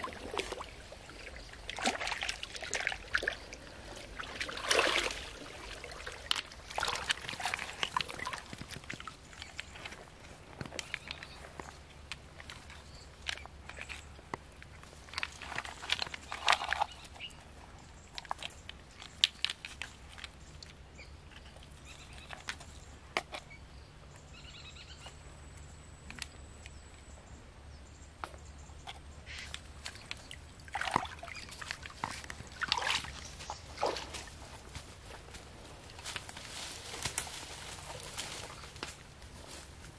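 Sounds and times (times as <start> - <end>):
wet mud sloshing: 0.0 - 10.9, 29.6 - 34.7
footsteps through dry leaves: 33.2 - 39.9.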